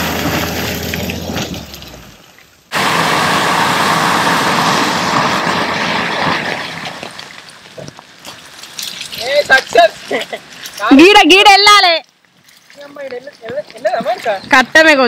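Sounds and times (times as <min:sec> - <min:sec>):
vehicle noise: 0:00.0 - 0:11.8
tyres working through mud: 0:00.0 - 0:15.0.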